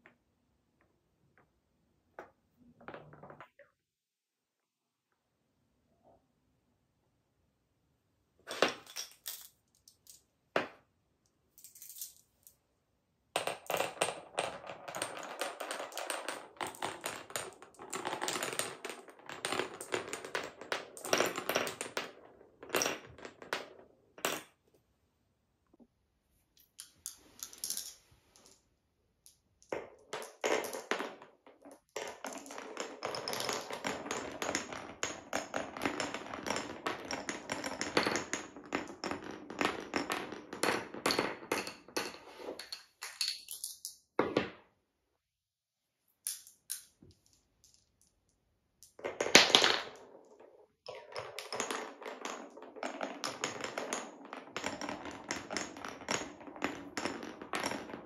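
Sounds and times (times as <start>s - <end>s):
glass marbles clattering on wood: 8.5s - 10.2s, 11.6s - 12.2s, 13.4s - 24.5s, 26.6s - 28.6s, 29.3s - 44.4s, 46.3s - 48.2s, 48.8s - 58.0s.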